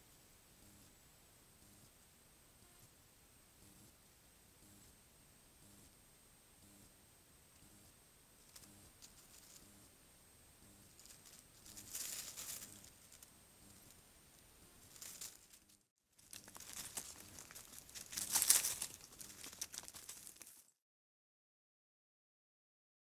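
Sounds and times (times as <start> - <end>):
faint high whine: 0.0 - 20.2
dry leaves rustling and crunching: 8.5 - 9.6, 10.9 - 13.3, 14.8 - 20.7.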